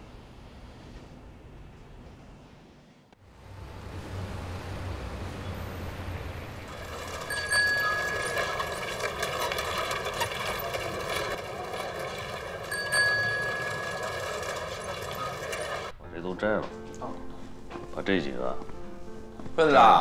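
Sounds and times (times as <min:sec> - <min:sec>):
low traffic rumble: 0:03.2 - 0:16.0.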